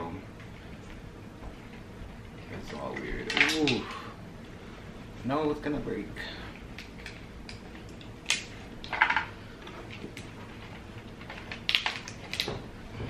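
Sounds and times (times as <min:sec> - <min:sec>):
lobster shell cracking: 0:03.3 - 0:03.8, 0:06.8 - 0:09.3, 0:11.2 - 0:12.6.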